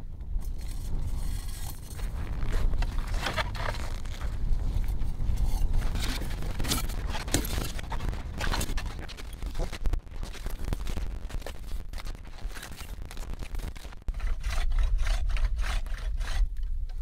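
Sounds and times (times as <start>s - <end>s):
low rumble: 0.0s - 17.0s
crunching and scraping in snow: 0.4s - 16.4s.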